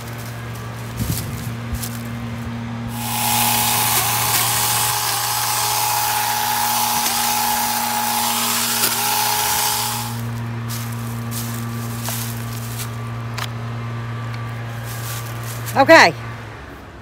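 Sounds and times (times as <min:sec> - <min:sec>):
battery chainsaw cutting branches: 0:02.9 - 0:13.5.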